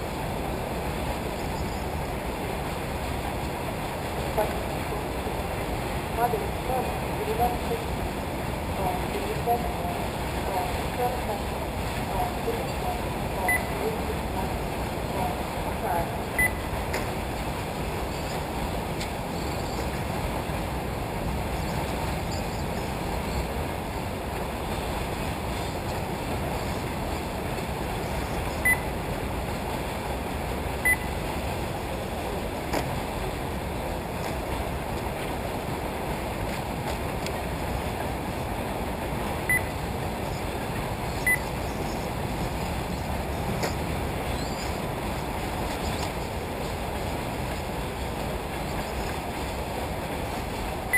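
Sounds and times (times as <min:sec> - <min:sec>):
outdoor noise: 0:00.0 - 0:50.9
short high electronic beeps: 0:16.4 - 0:16.6, 0:30.8 - 0:31.1, 0:39.5 - 0:39.7, 0:41.2 - 0:41.5.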